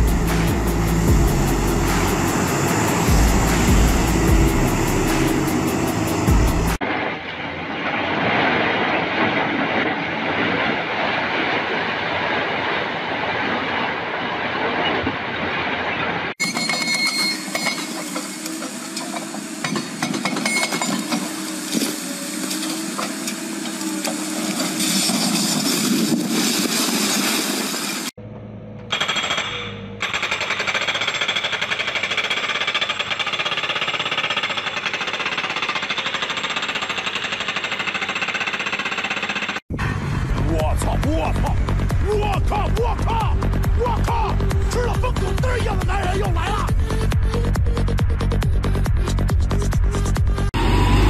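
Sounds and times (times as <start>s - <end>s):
excavator clatter and hum: 0.0s - 7.0s, 28.2s - 51.0s
hydraulic breaker pounding brick: 16.4s - 27.2s, 28.9s - 39.6s.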